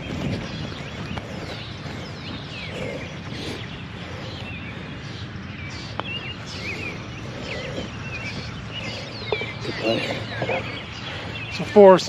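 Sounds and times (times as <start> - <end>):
low outdoor noise: 0.0 - 12.0
songbirds chirping: 0.0 - 12.0.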